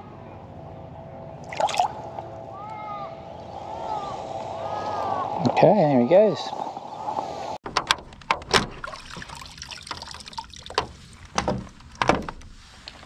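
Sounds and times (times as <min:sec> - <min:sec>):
water trickle: 0:08.7 - 0:12.0.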